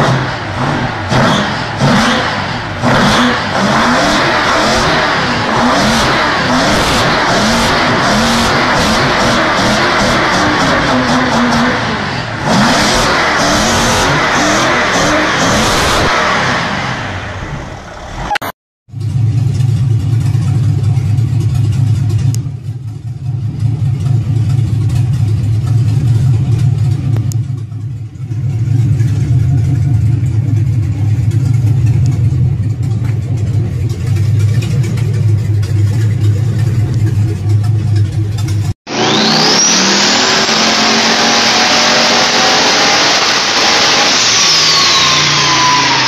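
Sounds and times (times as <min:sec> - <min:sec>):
engine revving: 0:00.0 - 0:18.6, 0:28.8 - 0:46.0
engine running with low drone: 0:00.0 - 0:46.0.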